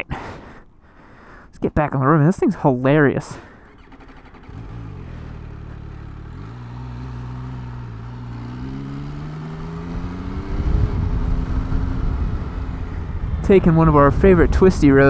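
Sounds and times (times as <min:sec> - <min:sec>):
motorcycle engine accelerating: 0:03.4 - 0:15.0
wind noise: 0:09.8 - 0:15.0.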